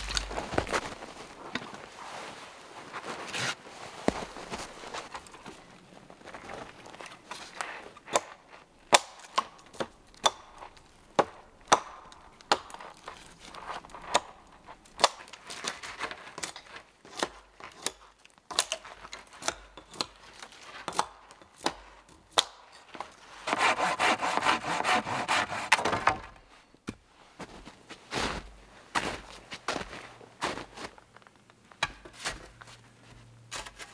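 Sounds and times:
twigs knocked and snapping: 0.0s - 1.6s, 8.1s - 15.8s
rasping strokes on wood: 23.4s - 25.8s.

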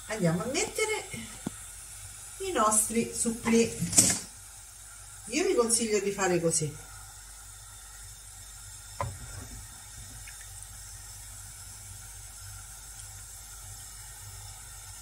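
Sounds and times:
deep-frying sizzle: 0.0s - 15.0s
metal skimmer knock: 9.0s - 9.6s.

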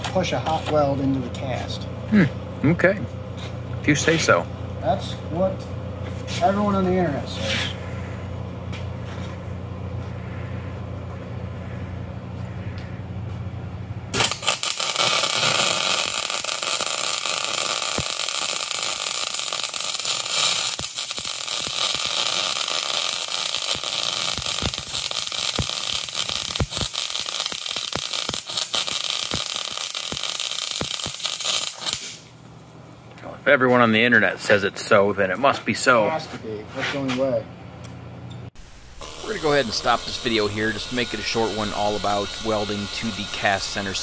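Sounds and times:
air peening tool buzzing: 14.1s - 32.2s, 38.6s - 44.0s
welder arc crackling and popping: 14.1s - 32.3s, 38.6s - 44.0s.

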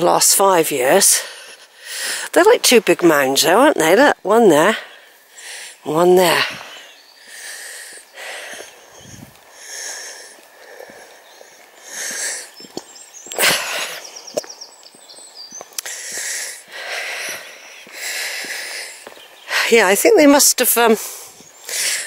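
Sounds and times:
person breathing close: 1.2s - 2.3s, 4.8s - 5.8s, 6.4s - 12.6s, 15.8s - 19.7s, 21.0s - 22.0s
light clicks of footfalls: 10.4s - 13.6s, 14.3s - 16.4s, 17.2s - 19.5s.

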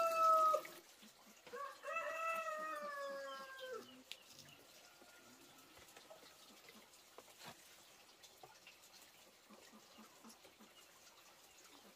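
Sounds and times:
small scratching sounds: 5.6s - 10.5s.

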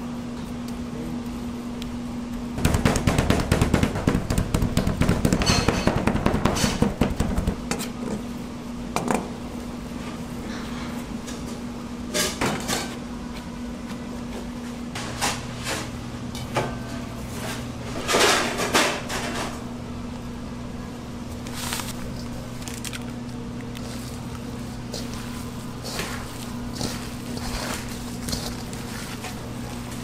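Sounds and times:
steady electrical hum: 0.0s - 30.0s
meat patted on cutting board: 2.6s - 5.4s
onions scraped into metal bowl: 24.9s - 30.0s.

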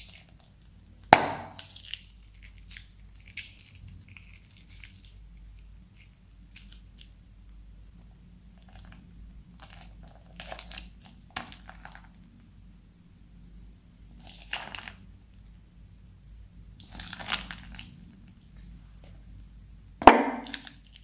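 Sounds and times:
plastic bag crinkling: 16.8s - 18.0s.

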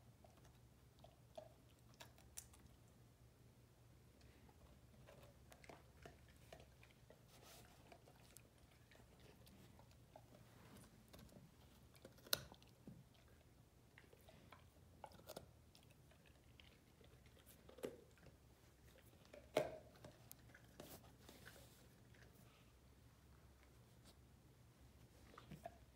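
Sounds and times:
dog crunching a carrot: 0.2s - 2.8s, 4.6s - 22.5s.

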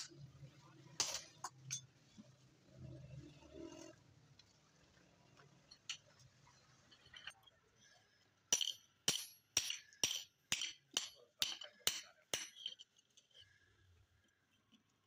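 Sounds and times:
hammer striking metal on anvil: 8.5s - 12.7s.

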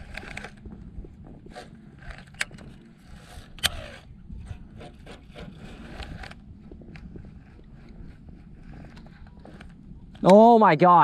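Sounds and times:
fishing reel clicks and scraping: 1.5s - 4.2s
sharp clicks: 2.0s - 4.1s.

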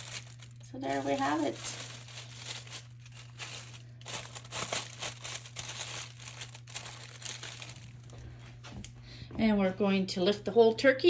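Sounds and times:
plastic bag crinkling: 0.0s - 8.7s
low hum: 0.0s - 9.7s.

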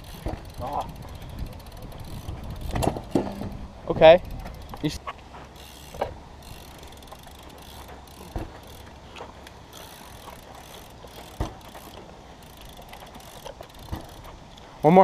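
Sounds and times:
bike rear hub ratchet ticking: 0.0s - 15.0s
bike tyres thumping on landing: 0.1s - 0.6s, 8.2s - 8.7s, 11.3s - 11.8s.

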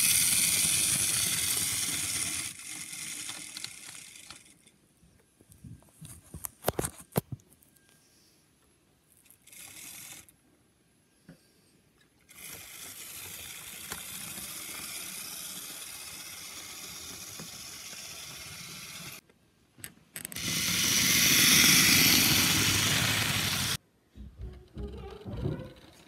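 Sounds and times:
model train wheels hissing on rails: 0.0s - 4.7s, 9.5s - 10.3s, 12.3s - 19.2s, 20.4s - 23.8s.

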